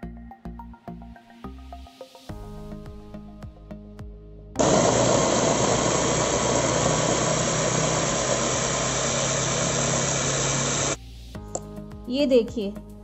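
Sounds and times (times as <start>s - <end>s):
food chopper motor grinding: 4.6s - 11.0s.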